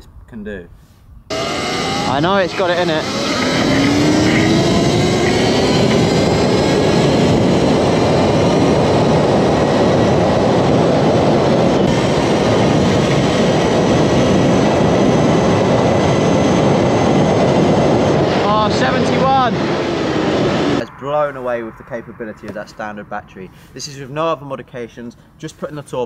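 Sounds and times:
faint electric motor whine: 0:01.3 - 0:09.5
wind rush and road noise: 0:01.3 - 0:23.4.

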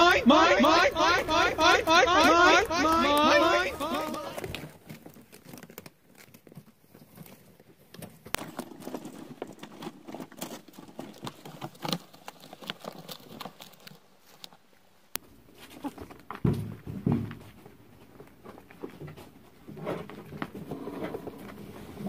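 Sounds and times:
paper crinkling and rustling: 0:00.7 - 0:14.8.

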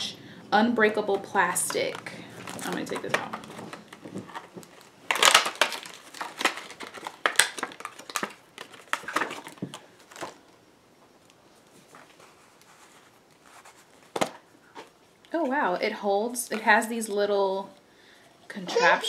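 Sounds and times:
plastic wrapping crinkling: 0:01.2 - 0:10.6, 0:11.2 - 0:15.3.

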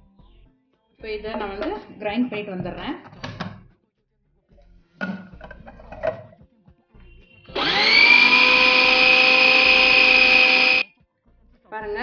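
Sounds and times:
plastic lid clicks and knocks: 0:05.0 - 0:06.4
food processor motor whining: 0:07.5 - 0:10.9.

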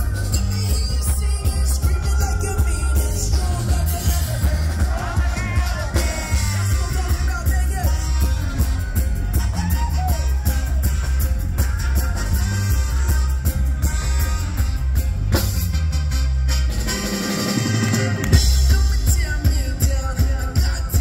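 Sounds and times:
person singing: 0:00.0 - 0:10.8, 0:17.6 - 0:21.0
congas: 0:00.0 - 0:21.0
reggae rock band playing: 0:00.0 - 0:21.0
trumpet: 0:00.0 - 0:21.0.

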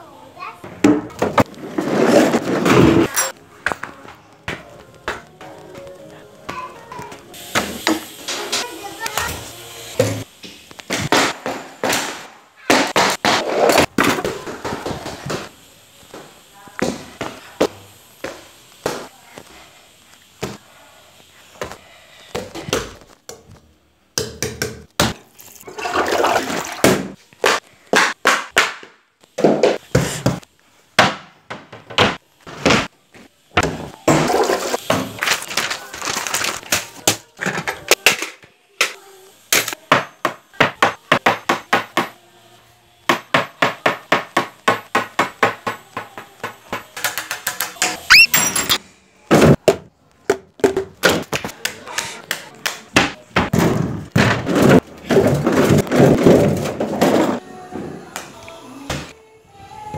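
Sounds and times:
short rising squeak: 0:48.1 - 0:48.8.

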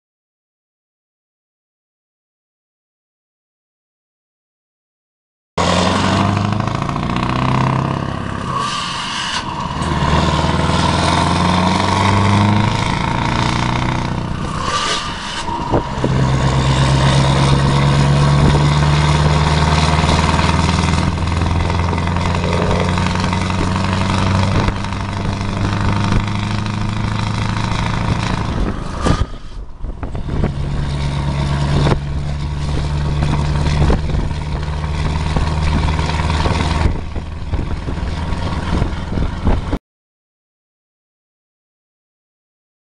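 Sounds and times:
truck diesel engine pulling: 0:05.6 - 0:39.8.

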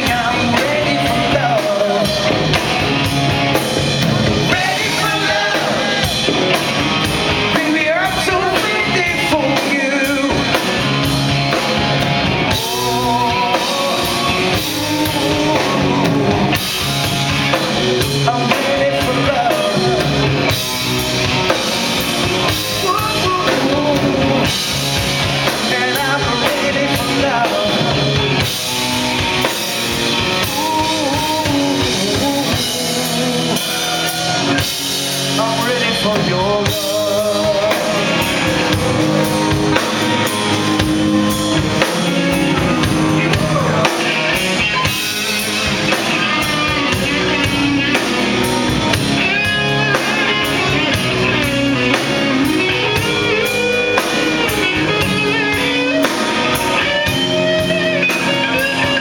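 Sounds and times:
male lead vocal: 0:00.0 - 0:02.9, 0:04.2 - 0:06.7, 0:07.3 - 0:11.0, 0:12.4 - 0:20.7, 0:22.4 - 0:29.0, 0:29.9 - 0:40.9, 0:41.6 - 0:45.1, 0:45.9 - 0:49.0
drum kit: 0:00.0 - 0:59.0
electric bass: 0:00.0 - 0:59.0
electric guitar: 0:00.0 - 0:59.0.

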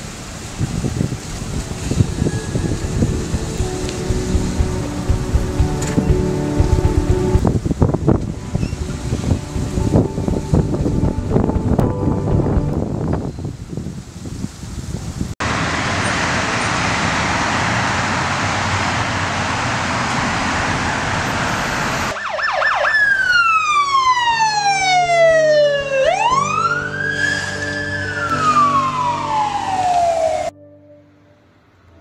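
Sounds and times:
steady rushing noise: 0:00.0 - 0:22.2
emergency vehicle siren wailing: 0:01.4 - 0:13.1, 0:15.9 - 0:30.6.

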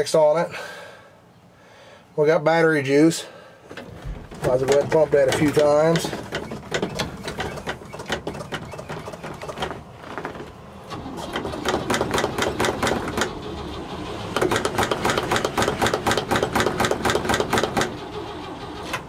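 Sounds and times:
starter cranking engine: 0:04.3 - 0:19.0.

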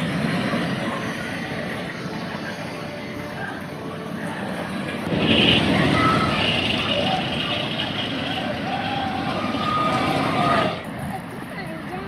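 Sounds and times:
roller coaster rumbling on track: 0:00.0 - 0:12.0.

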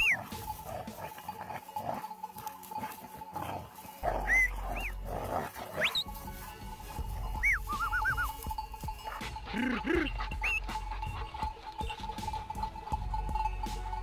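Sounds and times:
dog growling and snarling: 0:02.9 - 0:06.0
rising whistle: 0:07.4 - 0:08.3
bird chirps: 0:07.4 - 0:08.4.

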